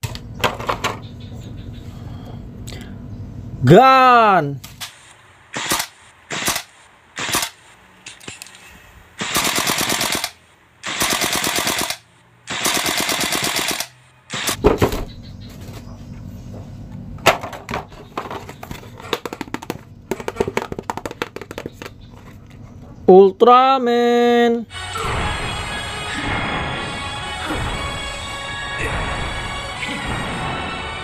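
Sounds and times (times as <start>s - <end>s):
automatic rifle fire: 4.8s - 7.7s, 9.2s - 14.7s
plastic toys being handled: 17.2s - 22.6s
low hum: 24.7s - 31.0s.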